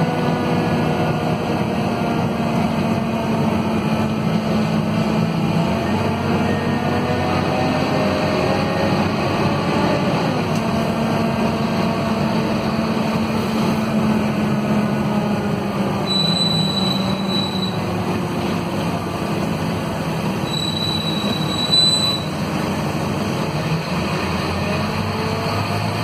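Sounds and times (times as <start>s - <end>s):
bus diesel engine droning: 0.0s - 26.0s
thin high squeal: 16.0s - 17.8s, 20.5s - 22.4s.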